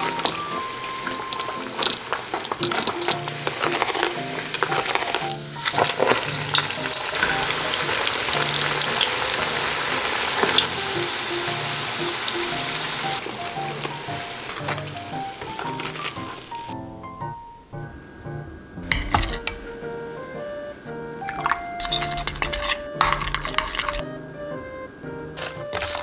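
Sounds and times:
dough sizzling in hot oil: 0:00.0 - 0:16.8.

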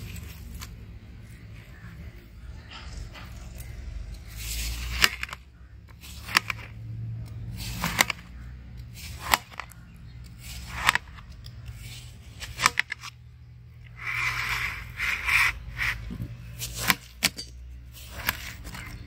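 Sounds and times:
knife slicing watermelon: 0:14.0 - 0:19.0.

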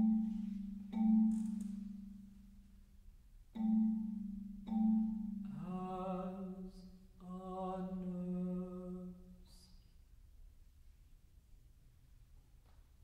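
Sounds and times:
marimba playing low notes: 0:00.0 - 0:02.7, 0:03.6 - 0:06.4.

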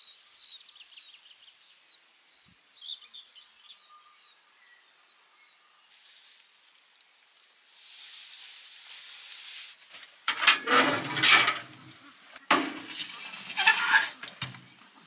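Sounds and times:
steady hiss: 0:05.9 - 0:10.3
shovel scraping through ash: 0:07.7 - 0:11.9, 0:12.6 - 0:14.4.

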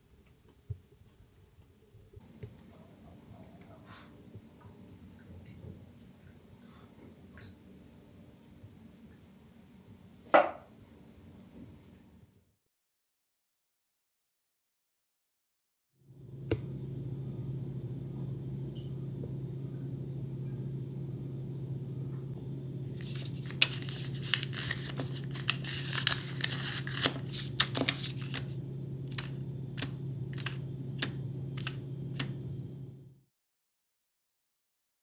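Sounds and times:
steady low hum: 0:00.0 - 0:12.3, 0:16.1 - 0:33.2
paper rustling and scraping: 0:22.8 - 0:32.3.

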